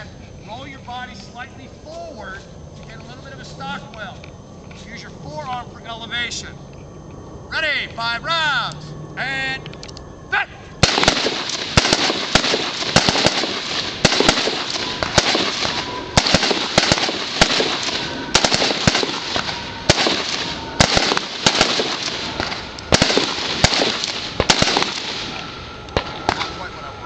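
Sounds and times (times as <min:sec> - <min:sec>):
rifle shots: 0:10.8 - 0:26.6.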